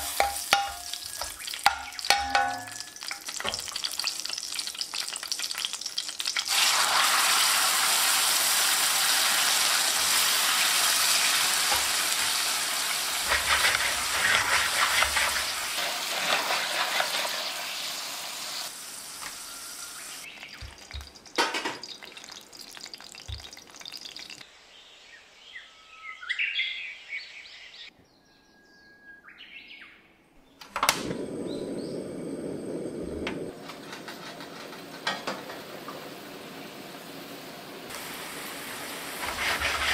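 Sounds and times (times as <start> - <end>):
water sizzling in hot oil: 0.0 - 24.4, 33.1 - 39.9
gas burner click: 30.6 - 31.3.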